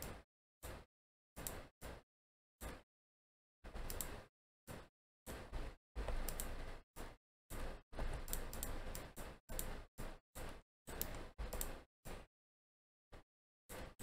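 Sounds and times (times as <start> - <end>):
keyboard and mouse clicks: 3.7 - 4.8, 6.0 - 6.6, 7.6 - 9.8, 10.4 - 12.2.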